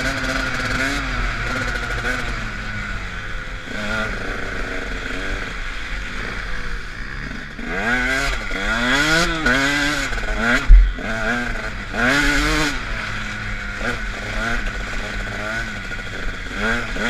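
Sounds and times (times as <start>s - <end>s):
two-stroke engine revving: 0.0s - 17.0s
loud low thump: 10.6s - 11.3s.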